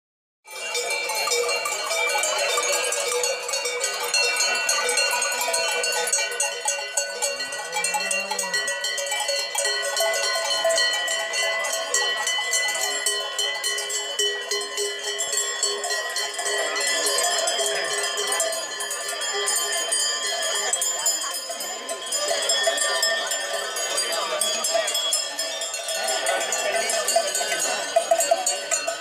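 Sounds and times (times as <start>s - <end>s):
cowbells clanging: 0.5s - 29.0s.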